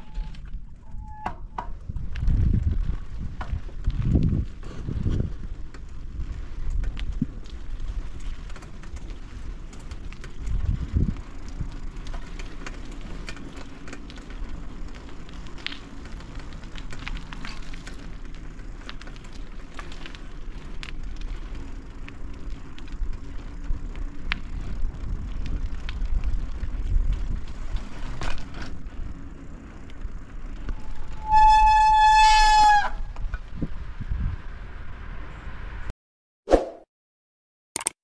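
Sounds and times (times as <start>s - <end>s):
wind rumble on microphone: 0.0s - 35.9s.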